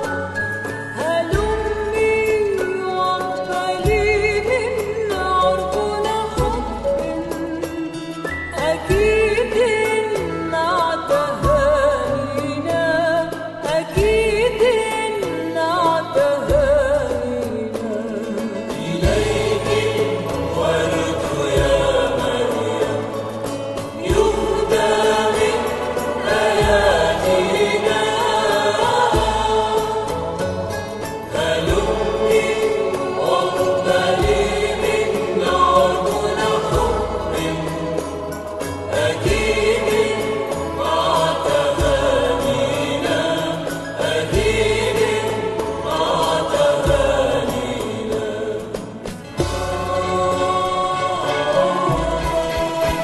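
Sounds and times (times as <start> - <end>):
low sustained bass: 16.5 - 48.8
choir singing: 18.0 - 53.0.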